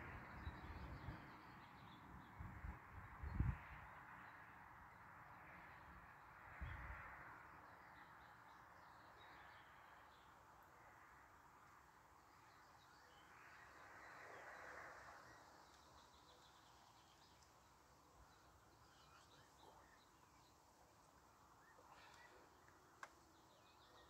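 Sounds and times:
small birds chirping: 12.3s - 24.0s.

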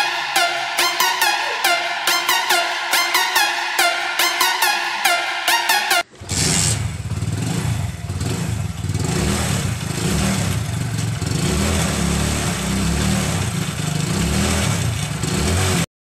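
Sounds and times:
motorcycle engine idling: 6.1s - 15.3s.

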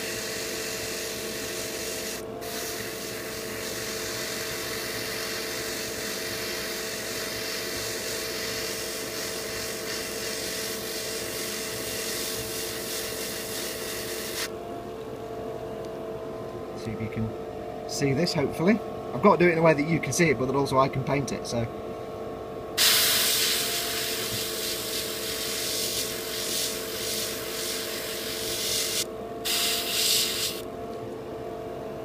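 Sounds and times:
airbrush hissing: 0.0s - 14.5s, 22.8s - 30.7s
steady low hum: 0.0s - 32.0s.

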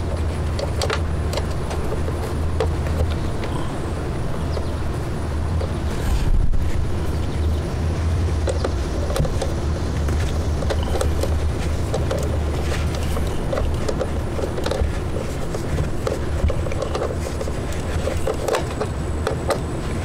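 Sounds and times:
steady low rumble: 0.0s - 20.0s
plastic trim clicks and scrapes: 8.4s - 20.0s.

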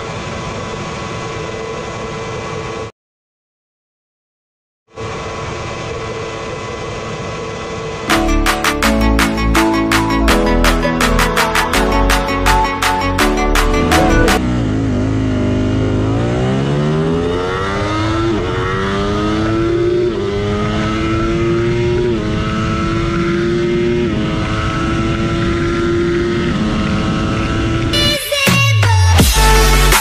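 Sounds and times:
motorcycle engine accelerating: 13.4s - 27.9s.

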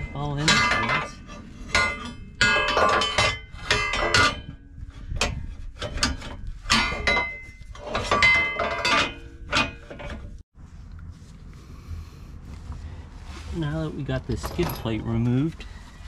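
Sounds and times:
metal bracket clanking against frame: 0.0s - 10.4s, 14.3s - 15.5s.

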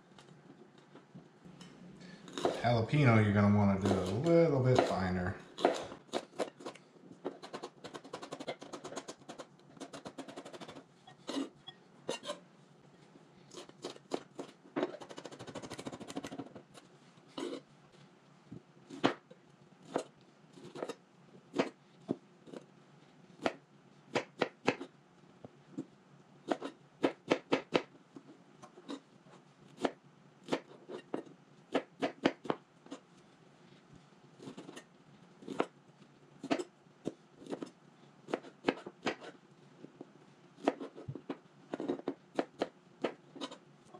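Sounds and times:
knife chopping on plastic board: 26.5s - 27.9s, 31.7s - 32.6s.

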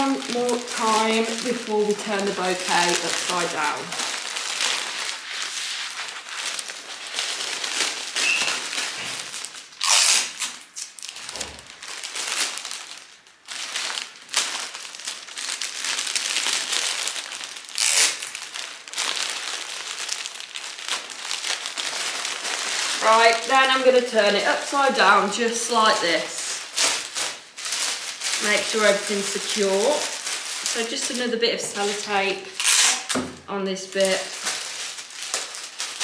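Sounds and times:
cellophane crinkling: 0.0s - 36.0s
sharp cellophane rasps: 8.1s - 9.1s, 9.8s - 12.8s, 15.6s - 21.9s, 32.4s - 33.2s.

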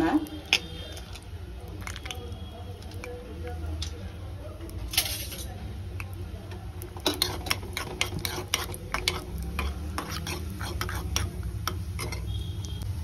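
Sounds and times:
frying sizzle: 0.0s - 13.0s
spoon scraping a pan: 6.8s - 12.5s.

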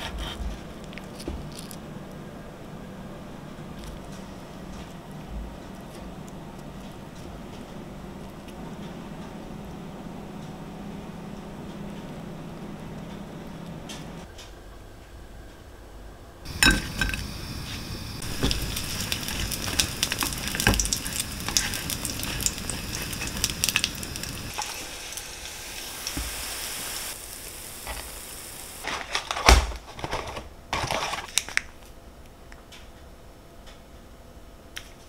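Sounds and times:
utensil scraping a pan: 16.5s - 24.8s
food sizzling in a pan: 16.5s - 28.8s.

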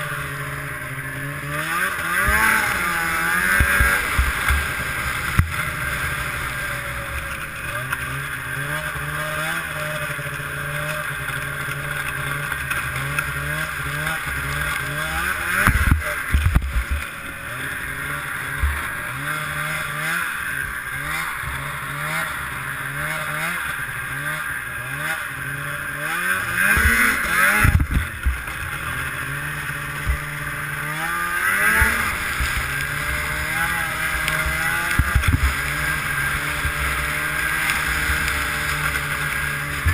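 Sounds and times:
snowmobile engine revving: 0.0s - 39.9s.

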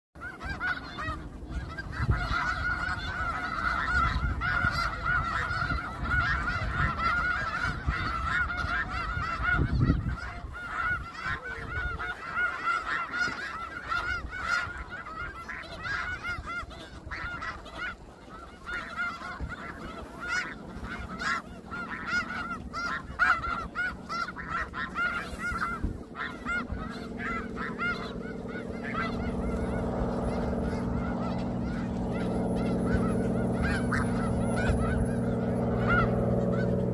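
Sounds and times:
geese honking: 0.2s - 36.9s
steady low hum: 0.2s - 36.9s
low rumble: 19.9s - 36.9s.

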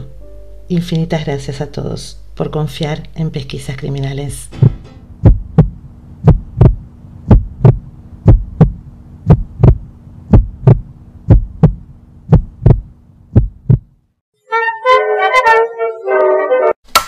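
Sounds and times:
music: 0.0s - 1.1s, 4.4s - 5.2s, 14.4s - 16.8s
steady low hum: 0.0s - 14.1s
heartbeat thumps: 4.6s - 14.0s.

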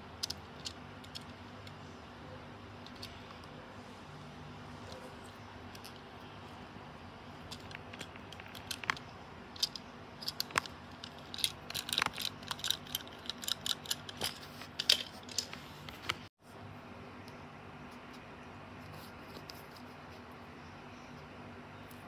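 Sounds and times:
toy car clicking in fingers: 7.5s - 9.0s, 9.6s - 15.1s.

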